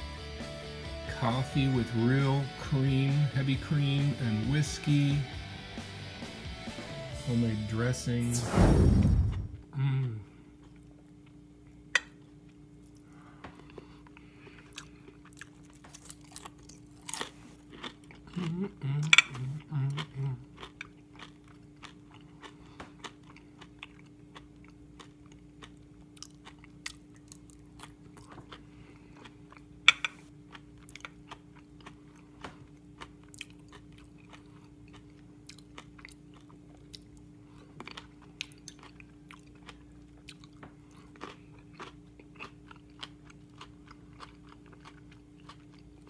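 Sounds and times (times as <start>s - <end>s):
low hum: 7.9s - 15.2s
person chewing food: 9.1s - 9.6s, 10.5s - 46.0s.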